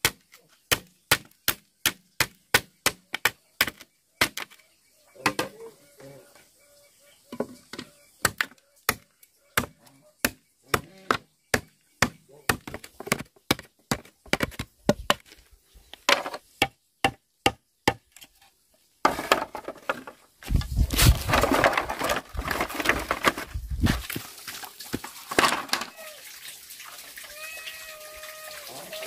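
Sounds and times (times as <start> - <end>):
blade chopping bamboo: 0.0 - 4.5.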